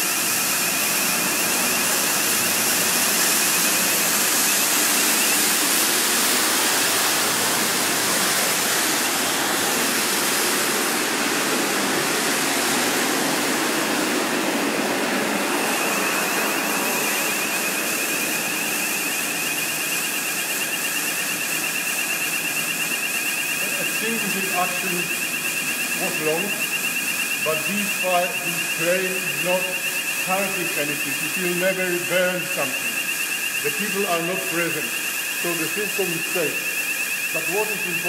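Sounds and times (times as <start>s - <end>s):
high warbling alarm tone: 0.0s - 38.0s.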